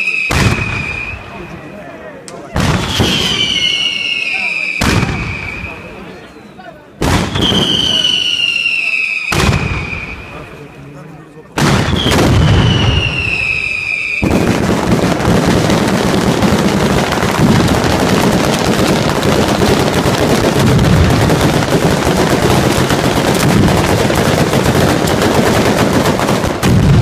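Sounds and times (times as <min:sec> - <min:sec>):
rapid firecracker bangs: 0:00.0 - 0:01.4, 0:02.5 - 0:05.9, 0:07.0 - 0:10.4, 0:11.6 - 0:27.0.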